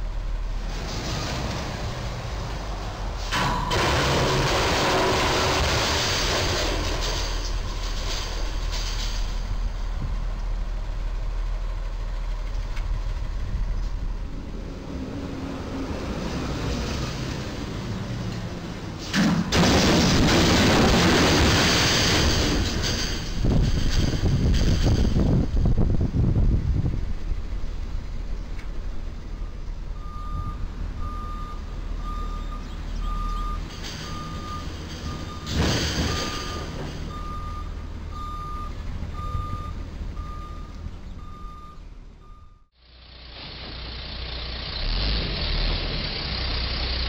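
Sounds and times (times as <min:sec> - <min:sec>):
road traffic rumble: 0:00.0 - 0:47.0
truck reversing alarm beeping: 0:29.3 - 0:42.7.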